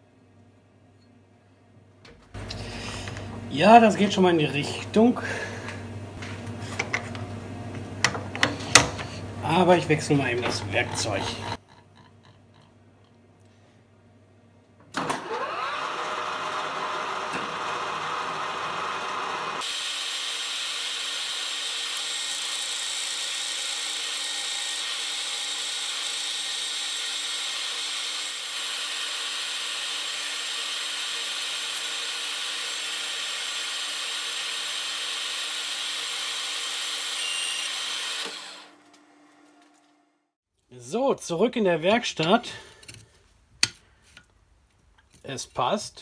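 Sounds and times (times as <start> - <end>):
metal lathe turning: 9.5 - 11.8, 15.2 - 38.7
lathe tool cutting metal: 15.3 - 38.7.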